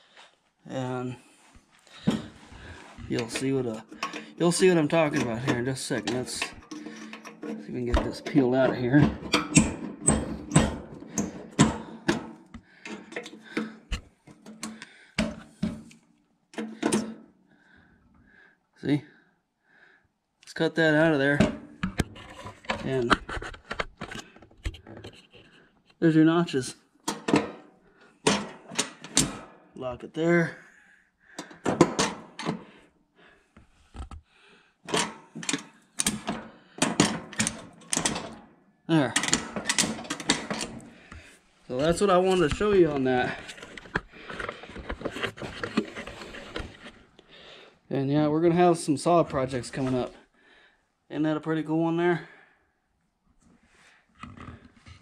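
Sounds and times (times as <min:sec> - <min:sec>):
metal lever clicks and clunks: 0:03.1 - 0:17.2, 0:27.0 - 0:29.5, 0:31.4 - 0:32.6, 0:34.9 - 0:40.9.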